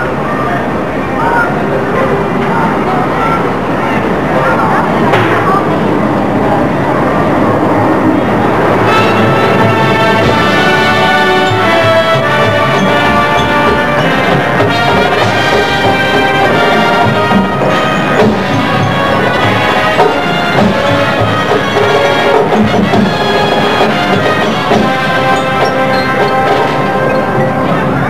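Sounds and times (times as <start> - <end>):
marching band playing: 7.9 - 28.0.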